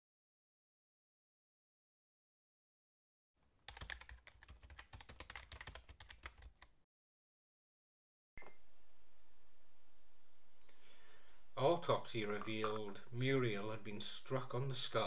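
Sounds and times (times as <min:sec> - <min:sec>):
keyboard typing clicks: 0:03.7 - 0:06.7.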